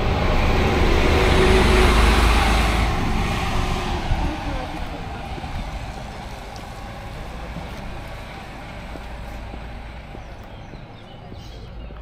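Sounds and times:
coach engine running: 0.0 - 11.4
wind rumble on microphone: 2.8 - 8.3.

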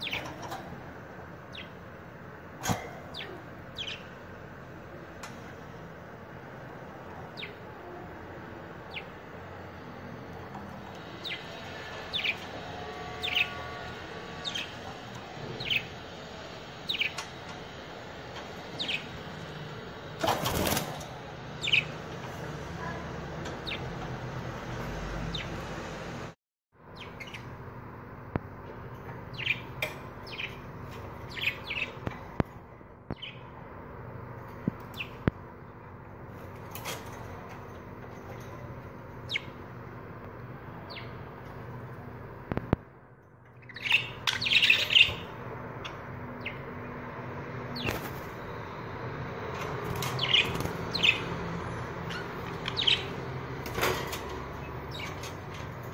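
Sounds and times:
budgerigars chirping: 0.0 - 0.3, 3.1 - 4.1, 11.0 - 16.2, 16.9 - 17.2, 18.7 - 19.6, 21.5 - 22.0, 29.3 - 29.7, 31.3 - 32.1, 39.3 - 39.6, 43.6 - 46.6, 49.9 - 51.4, 52.1 - 53.2.

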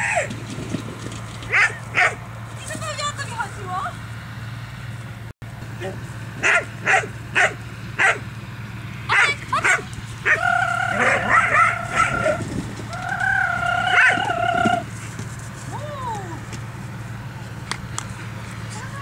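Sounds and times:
dog barking sharply: 1.5 - 2.2, 6.4 - 8.2, 9.1 - 9.9
dog high-pitched wavering cries: 9.1 - 12.4, 13.0 - 14.9.

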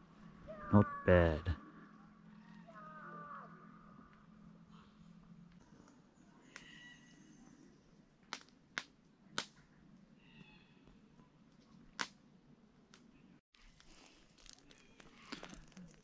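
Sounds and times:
faint outdoor ambience: 0.0 - 16.0
faint high-pitched calls: 0.4 - 5.0, 6.4 - 7.6, 10.2 - 10.9.

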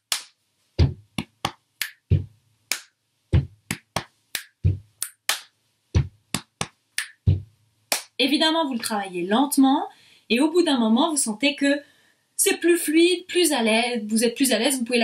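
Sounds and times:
hand claps: 0.0 - 8.2
foot stomp on floor: 0.8 - 1.0, 3.4 - 3.6.

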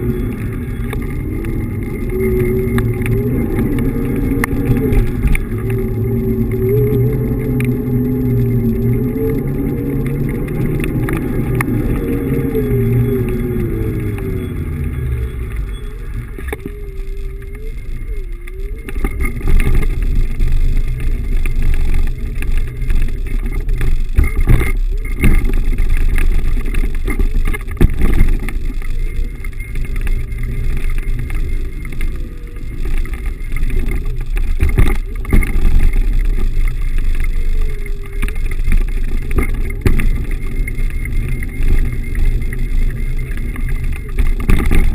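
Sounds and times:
wind and road noise: 0.0 - 44.9.

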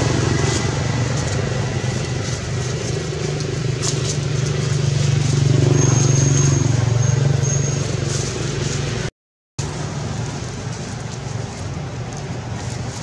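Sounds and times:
motor engine humming: 0.0 - 13.0.

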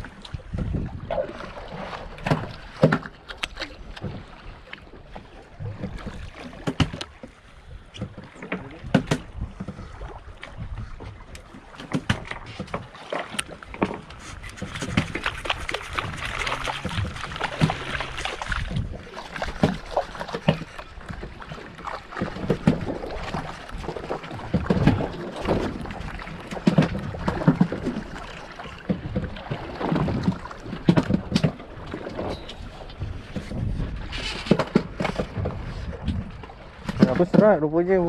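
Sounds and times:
wind buffeting microphone: 0.0 - 2.2, 7.6 - 11.4, 14.0 - 28.3, 28.9 - 38.0
waves lapping against boat hull: 0.0 - 38.0.

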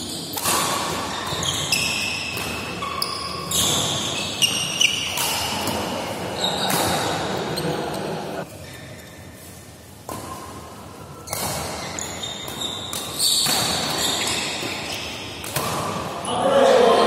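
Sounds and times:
rackets hitting shuttlecock: 0.0 - 7.4, 11.2 - 16.2
shoes squeaking on court: 0.0 - 10.4, 11.0 - 15.7.

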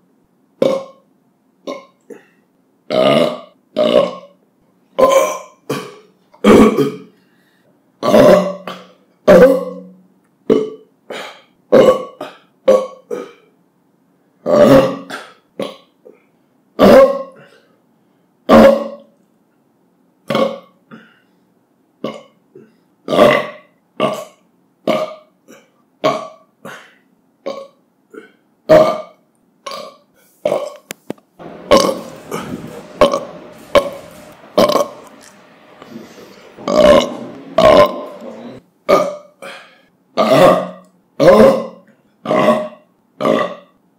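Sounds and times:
man belching: 0.6 - 1.0, 1.7 - 2.3, 2.9 - 4.4, 5.0 - 7.0, 8.0 - 9.9, 14.4 - 15.9, 20.3 - 21.0, 22.0 - 22.4, 23.1 - 26.4, 27.4 - 30.8, 31.6 - 39.6, 40.2 - 43.8.

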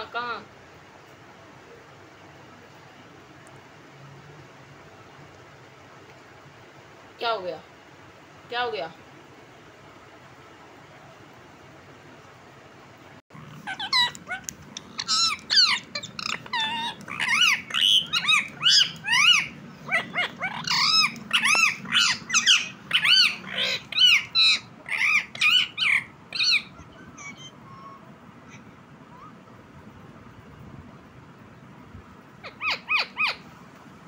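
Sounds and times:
parakeet calling: 13.3 - 29.4, 32.4 - 33.5.

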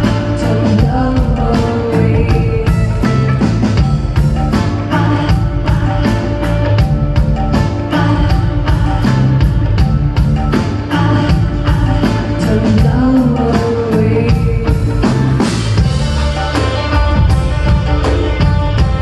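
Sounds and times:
woman singing: 0.0 - 3.5, 4.5 - 6.9, 7.7 - 16.0
drum kit beat: 0.0 - 19.0
rock band playing: 0.0 - 19.0.

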